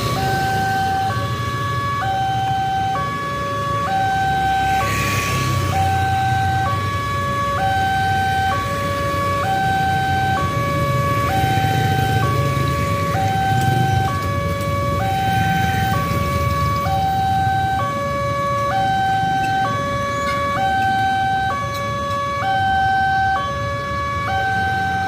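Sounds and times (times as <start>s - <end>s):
vehicle passing close: 0.0s - 2.2s, 3.6s - 7.4s
rumble of traffic: 0.0s - 25.0s.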